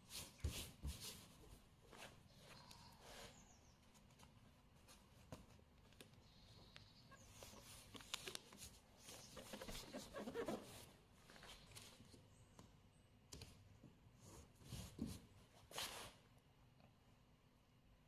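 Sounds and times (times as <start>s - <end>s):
masking tape rustling and crackling: 3.9s - 12.2s.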